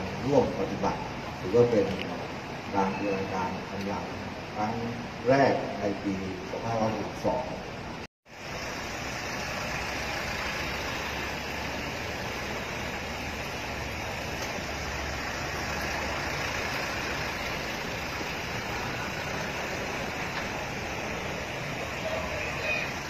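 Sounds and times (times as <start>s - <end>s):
vehicles driving slowly past: 0.0s - 23.0s.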